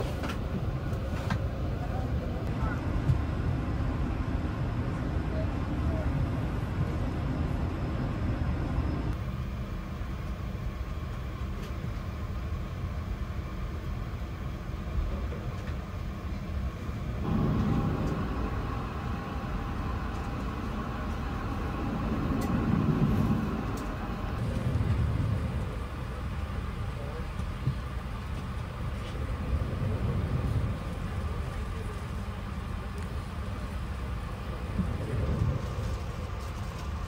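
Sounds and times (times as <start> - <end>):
aircraft cabin rumble: 0.0 - 37.0.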